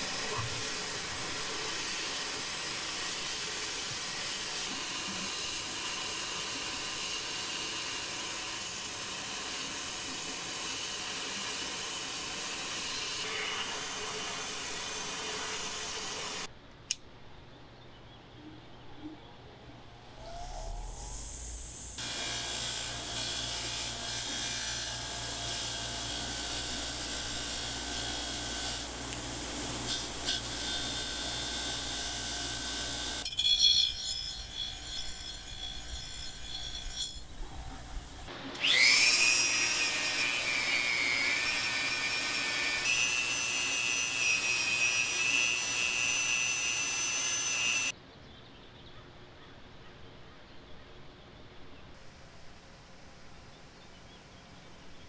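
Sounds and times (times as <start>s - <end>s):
power tool grinding metal: 0.0s - 16.5s, 21.9s - 47.9s
motor spinning up whine: 20.0s - 22.2s.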